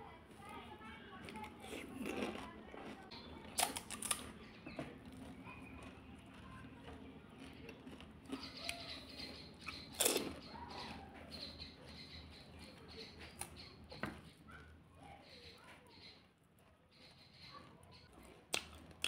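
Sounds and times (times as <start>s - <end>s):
chewing and wet mouth sounds: 1.2s - 14.8s, 16.5s - 19.0s
crunchy bite: 1.6s - 4.4s, 9.6s - 10.6s.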